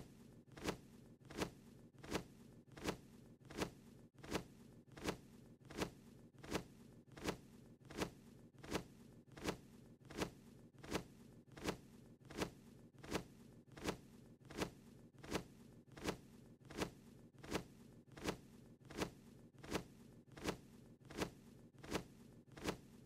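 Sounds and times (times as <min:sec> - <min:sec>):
cartoon wings flapping: 0:07.2 - 0:22.9.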